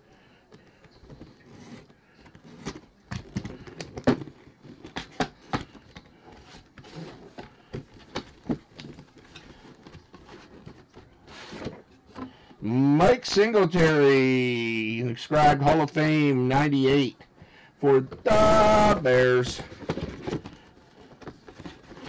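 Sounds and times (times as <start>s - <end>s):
cardboard sliding scrape: 1.2s - 2.8s, 9.2s - 12.3s
cardboard box scraping and rustling: 6.3s - 12.3s.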